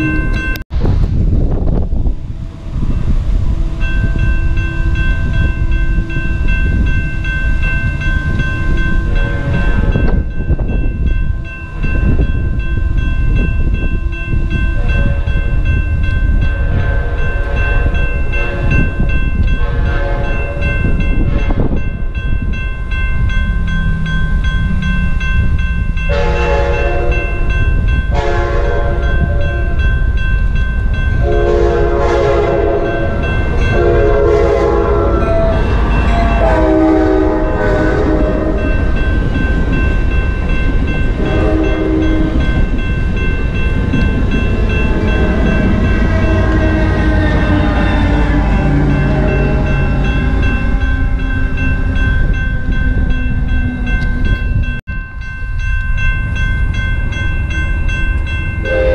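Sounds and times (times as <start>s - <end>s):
crossing warning bell ringing: 0.0s - 0.7s, 1.5s - 58.9s
wind rumbling on microphone: 0.0s - 58.9s
train horn blasts: 9.1s - 10.2s, 14.1s - 15.6s, 16.4s - 21.8s, 26.1s - 27.5s, 28.1s - 29.9s, 31.2s - 38.9s, 41.2s - 42.4s, 45.2s - 52.0s, 58.6s - 58.9s.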